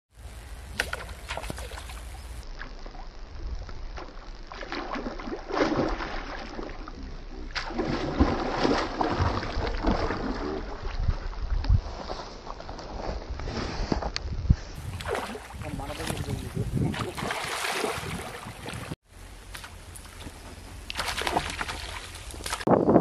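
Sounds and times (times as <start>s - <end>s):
water splashing: 0.2s - 3.2s, 3.8s - 11.6s, 14.8s - 22.7s
wind rumble on microphone: 9.0s - 19.0s, 19.8s - 23.0s.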